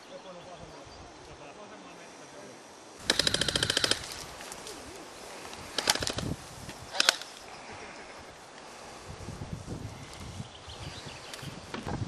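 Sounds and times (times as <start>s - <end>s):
airsoft gun firing bursts: 3.0s - 4.2s, 5.7s - 7.3s.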